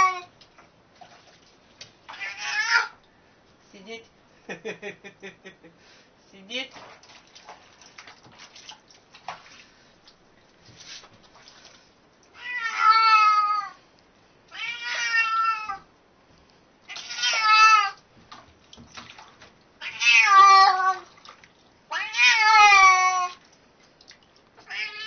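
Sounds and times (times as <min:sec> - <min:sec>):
cat meowing loudly: 0:00.0 - 0:00.3, 0:02.1 - 0:03.0, 0:12.4 - 0:13.8, 0:14.5 - 0:15.9, 0:16.9 - 0:18.0, 0:19.8 - 0:21.1, 0:21.9 - 0:23.4, 0:24.6 - 0:25.0.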